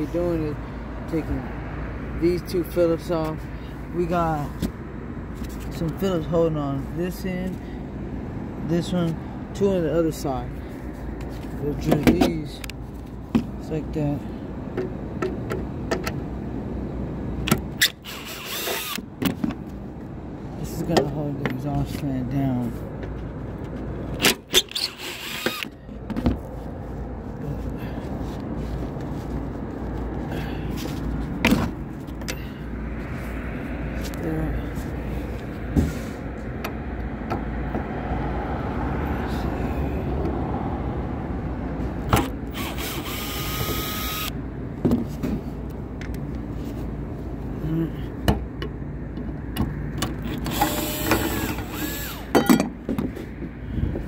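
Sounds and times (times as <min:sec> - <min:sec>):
cordless drill backing out screw: 0:17.8 - 0:19.0, 0:24.2 - 0:25.8, 0:42.2 - 0:44.3, 0:50.2 - 0:52.5
handling clicks and knocks: 0:52.3 - 0:53.6.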